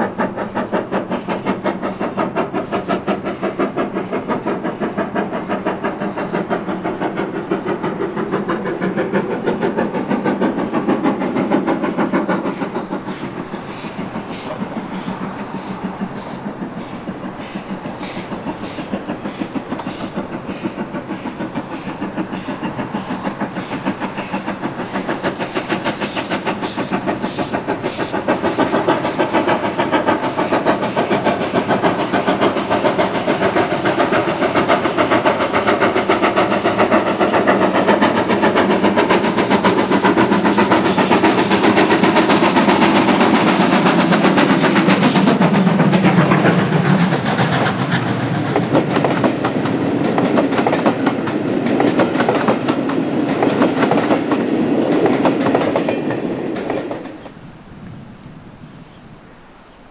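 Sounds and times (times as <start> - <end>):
train wheels clattering over rail joints: 0.0 - 57.4
steam locomotive exhaust beat: 0.0 - 59.2.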